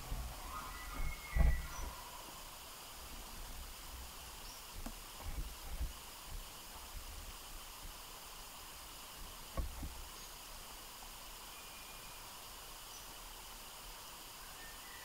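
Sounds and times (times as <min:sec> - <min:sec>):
forest ambience hiss: 0:00.0 - 0:15.0
low thump: 0:00.9 - 0:01.9
thin whistle: 0:11.5 - 0:12.2.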